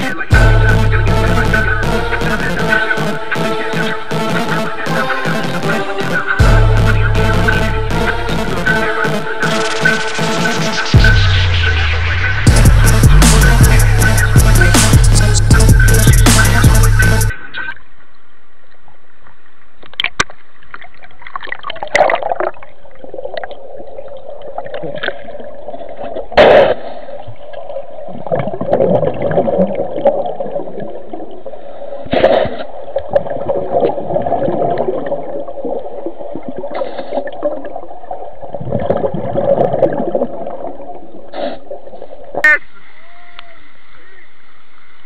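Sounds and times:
muffled underwater water gurgling: 0:21.0 - 0:45.0.

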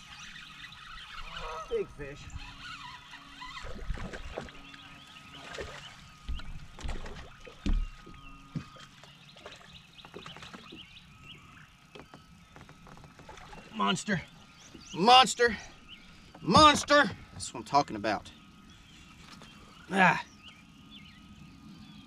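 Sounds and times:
water splashing and lapping: 0:00.0 - 0:11.2, 0:11.8 - 0:17.7
knocks on boat deck: 0:06.3 - 0:08.7.

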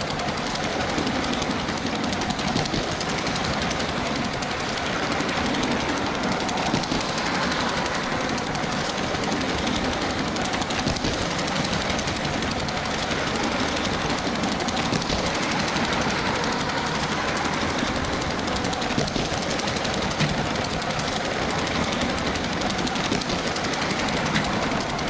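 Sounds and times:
toy train motor rattling: 0:00.0 - 0:25.0.

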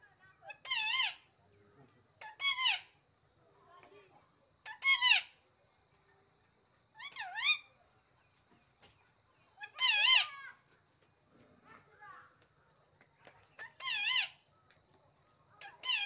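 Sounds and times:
parakeet screeching: 0:00.6 - 0:01.2, 0:02.2 - 0:02.9, 0:04.7 - 0:05.3, 0:09.6 - 0:10.4, 0:13.8 - 0:14.4, 0:15.6 - 0:16.0.

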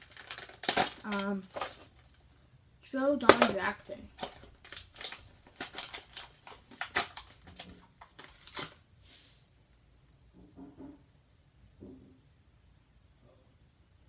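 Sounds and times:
plastic packaging crinkling: 0:00.0 - 0:02.3, 0:02.9 - 0:08.8.

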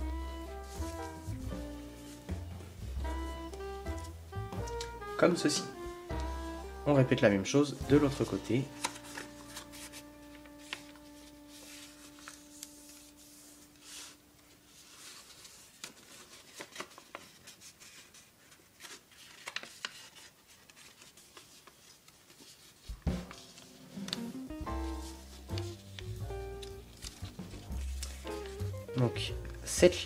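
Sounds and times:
paper crinkling and folding: 0:07.0 - 0:29.8.

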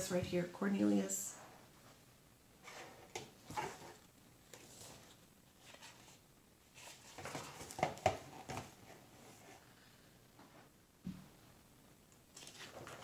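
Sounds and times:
book pages turning: 0:02.7 - 0:09.0, 0:12.3 - 0:13.0.

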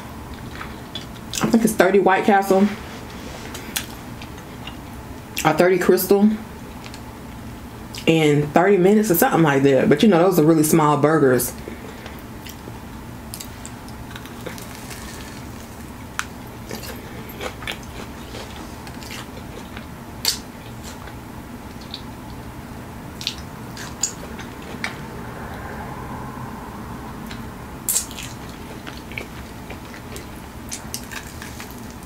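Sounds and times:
chewing crunches: 0:13.3 - 0:22.4, 0:23.2 - 0:25.0, 0:27.3 - 0:32.0.

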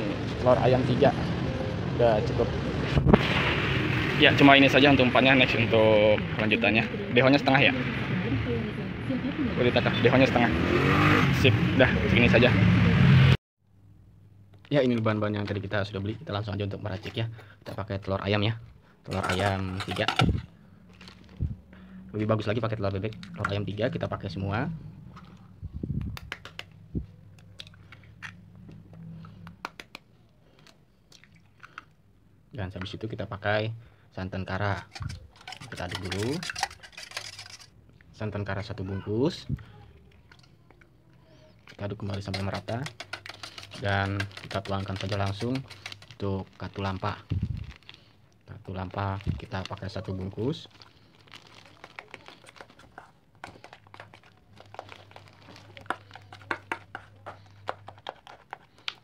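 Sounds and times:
spoon stirring in metal bowl: 0:19.1 - 0:20.4, 0:34.6 - 0:37.8, 0:41.6 - 0:46.2, 0:51.8 - 0:59.0
plastic packet crinkling: 0:19.1 - 0:21.5, 0:34.8 - 0:37.7, 0:41.6 - 0:59.0
eggshells cracking: 0:41.7 - 0:47.3, 0:50.6 - 0:59.0.

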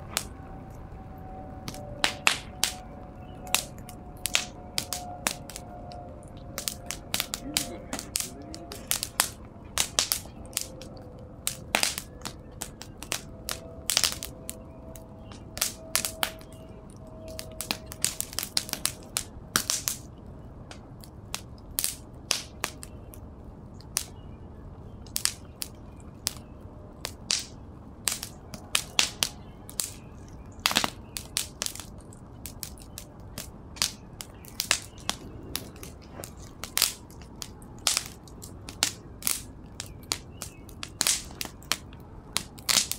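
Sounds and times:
fire crackling and popping: 0:00.0 - 0:42.9
rush of flame: 0:25.1 - 0:42.9.

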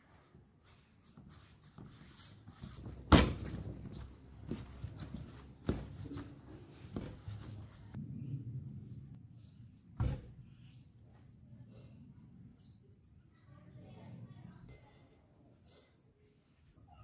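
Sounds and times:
hands kneading on steel plate: 0:00.0 - 0:08.0.

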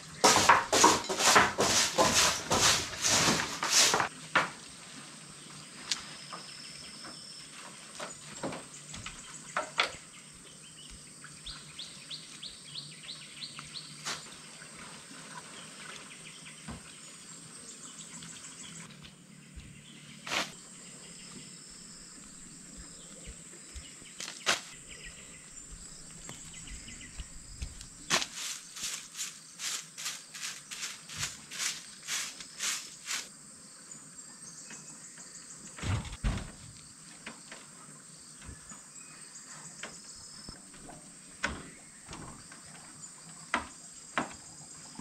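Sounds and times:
insect drone: 0:00.0 - 0:45.0
birds chirping: 0:15.4 - 0:36.3.

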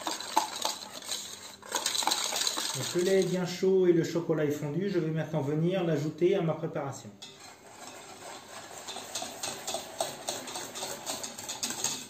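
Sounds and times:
whisk scraping metal bowl: 0:00.0 - 0:03.6, 0:07.2 - 0:12.0.

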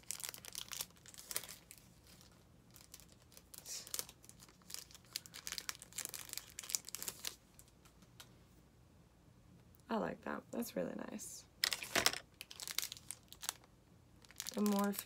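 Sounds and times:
plastic packaging crinkling: 0:00.0 - 0:07.8, 0:11.6 - 0:15.0.

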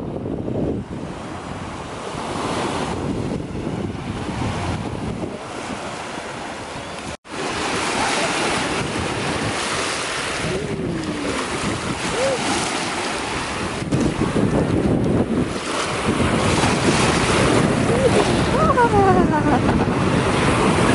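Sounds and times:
wind buffeting microphone: 0:00.0 - 0:20.9
waves washing onto pebbles: 0:07.3 - 0:20.9.

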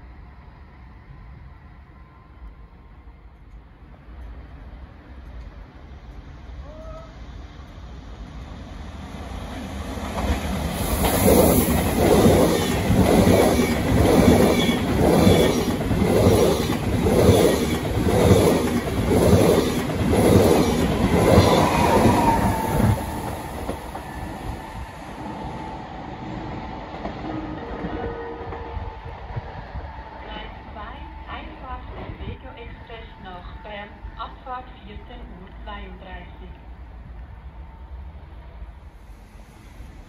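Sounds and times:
train wheels clattering over rails: 0:09.8 - 0:24.6.

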